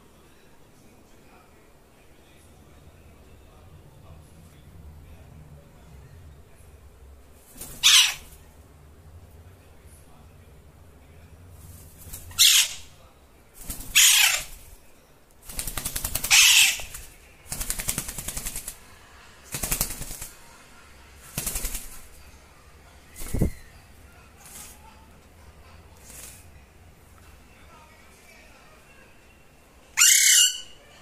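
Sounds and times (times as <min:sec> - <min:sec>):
parrot screeching: 0:07.8 - 0:08.3, 0:12.3 - 0:12.9, 0:13.9 - 0:14.6, 0:16.2 - 0:17.0, 0:30.0 - 0:30.9.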